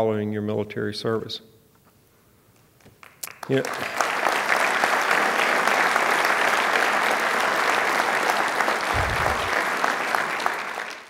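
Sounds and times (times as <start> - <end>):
audience applauding: 3.0 - 11.0
short low thump: 9.0 - 9.5.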